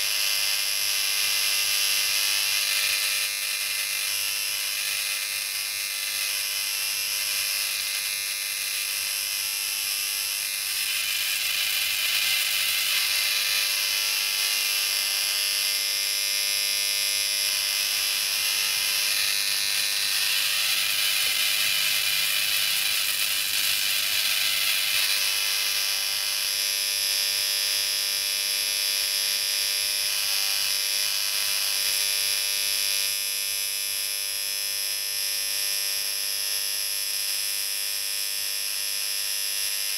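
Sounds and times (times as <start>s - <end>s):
electrical arc hiss: 0.0s - 27.9s
high-pitched electrical arc buzz: 0.0s - 39.9s.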